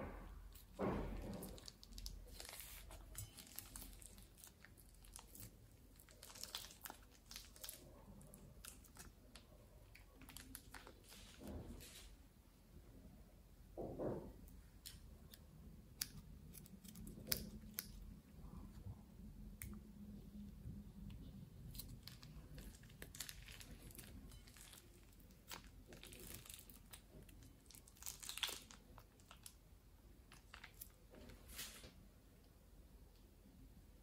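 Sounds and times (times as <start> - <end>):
plastic piping bag crinkling: 0.5 - 12.0, 21.6 - 31.9
foam-bead slime crackling: 0.6 - 11.4, 21.7 - 29.6.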